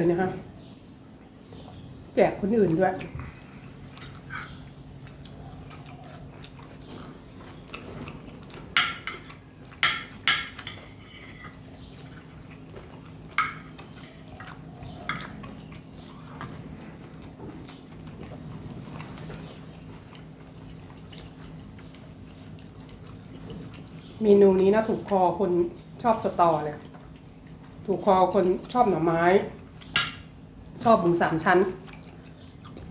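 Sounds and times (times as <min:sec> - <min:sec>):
quiet chewing: 0:02.6 - 0:30.7, 0:31.7 - 0:32.9
cutlery clinking on a plate: 0:08.8 - 0:11.6.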